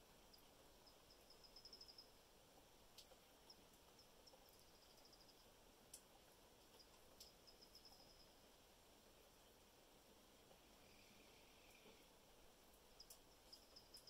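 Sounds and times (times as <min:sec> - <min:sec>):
faint sharp ticks: 0:03.0 - 0:05.3, 0:06.7 - 0:08.1, 0:13.0 - 0:14.0.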